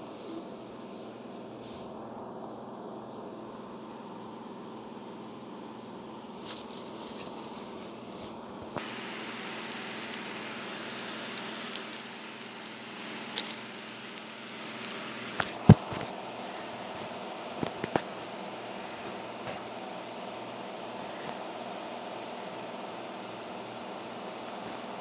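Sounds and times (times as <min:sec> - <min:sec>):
hands rubbing and rustling: 0:06.4 - 0:16.1
small clicks: 0:09.2 - 0:15.6.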